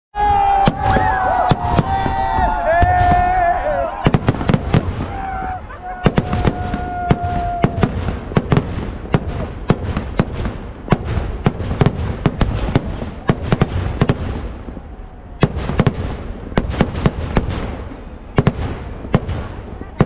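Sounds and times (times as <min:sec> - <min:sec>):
fireworks bangs: 0:00.2 - 0:20.0
steady whistle: 0:07.6 - 0:08.5.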